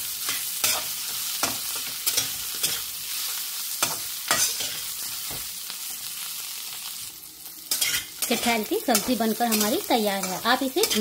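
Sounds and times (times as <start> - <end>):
vegetables sizzling in a pan: 0.0 - 11.0
metal spatula scraping a pan: 3.8 - 5.0, 7.7 - 11.0.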